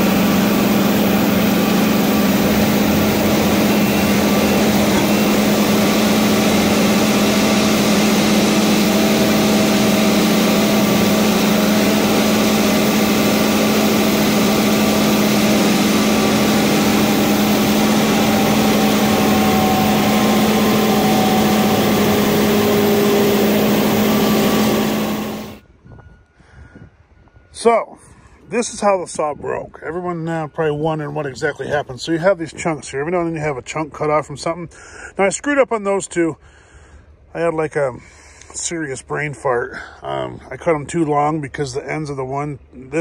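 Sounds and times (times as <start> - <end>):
log loader engine running: 0.0 - 25.7.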